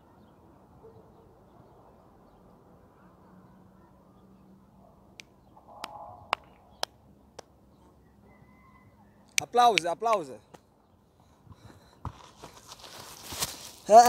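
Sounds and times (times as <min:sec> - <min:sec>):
low outdoor background: 0:00.0 - 0:14.0
sharp hand claps: 0:05.2 - 0:07.5, 0:09.4 - 0:10.6.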